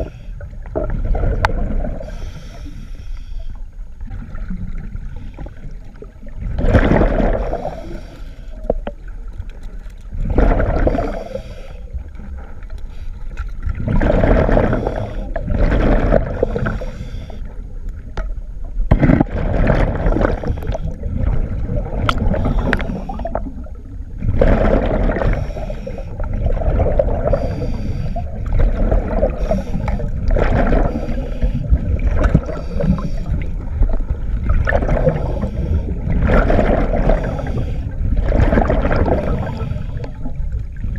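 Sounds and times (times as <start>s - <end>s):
diver breathing through regulator: 0.0s - 0.5s, 1.9s - 3.7s, 7.0s - 8.8s, 10.6s - 12.1s, 14.1s - 17.6s, 19.8s - 21.2s, 22.1s - 23.7s, 25.0s - 33.7s, 34.8s - 40.4s
gurgling exhaled bubbles: 0.0s - 2.4s, 4.0s - 12.6s, 13.5s - 40.9s.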